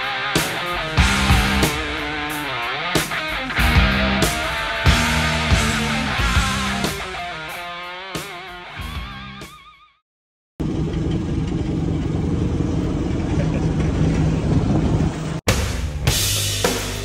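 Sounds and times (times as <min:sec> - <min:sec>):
guitar music: 0:00.0 - 0:09.8
boat engine humming: 0:10.6 - 0:15.4.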